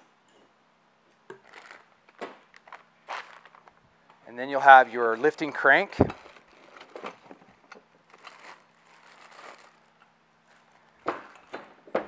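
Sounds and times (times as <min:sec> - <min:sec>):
cardboard and plastic bags rustling: 0:01.4 - 0:01.9, 0:02.5 - 0:03.8, 0:04.7 - 0:11.5.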